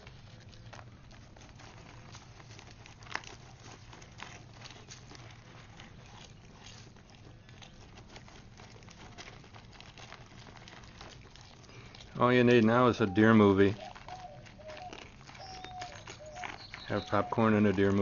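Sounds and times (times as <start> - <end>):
animal crunching popcorn: 0.0 - 18.0
paper bag rustling: 0.0 - 18.0
sharp crackles: 0.0 - 18.0.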